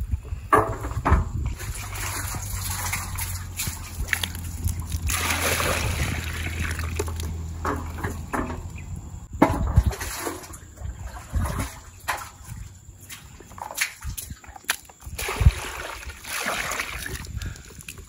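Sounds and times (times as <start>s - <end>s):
water pouring into bucket: 1.5s - 7.3s, 15.2s - 17.6s
water splashing in bucket: 1.5s - 8.6s, 9.5s - 18.0s.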